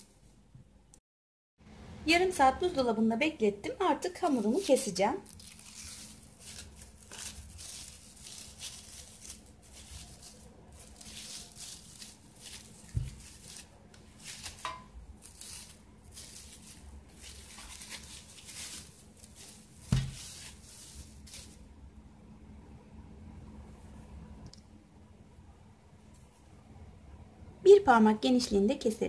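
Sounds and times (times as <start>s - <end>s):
cling film crinkling: 4.0s - 21.6s.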